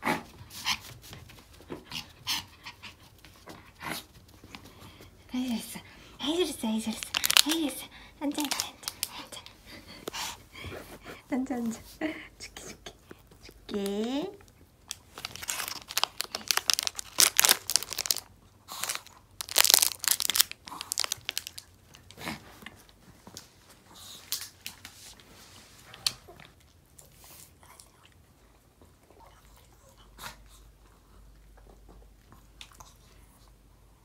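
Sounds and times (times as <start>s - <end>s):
dog crunching a chew: 6.9s - 9.3s, 14.5s - 22.3s.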